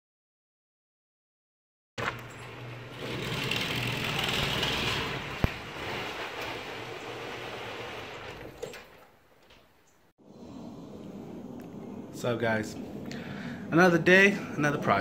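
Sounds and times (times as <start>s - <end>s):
garage door opener running: 2.0s - 9.2s.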